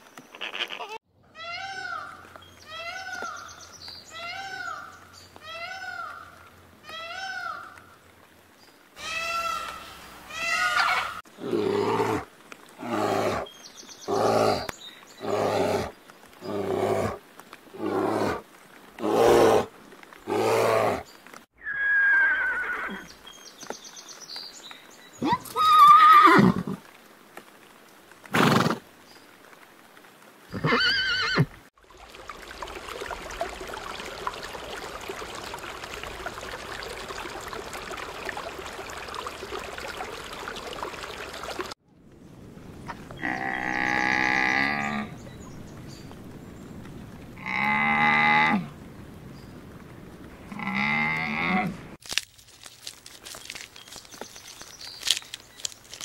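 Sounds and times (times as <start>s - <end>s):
loud animal calls: 9.0s - 11.2s
pony whinnying: 21.6s - 23.1s, 30.5s - 31.5s
aquarium water hissing: 31.9s - 41.8s.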